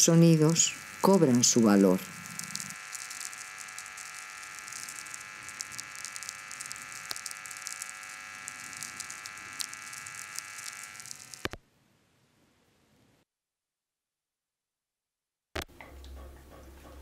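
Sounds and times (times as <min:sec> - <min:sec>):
steady hiss and hum: 0:00.0 - 0:11.6
sharp crackles: 0:00.1 - 0:11.6.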